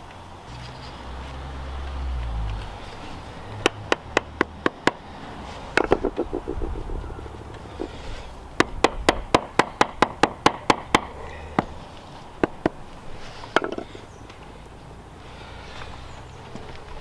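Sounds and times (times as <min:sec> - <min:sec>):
hammer handle tapping stone: 0:05.8 - 0:06.9, 0:08.6 - 0:11.7.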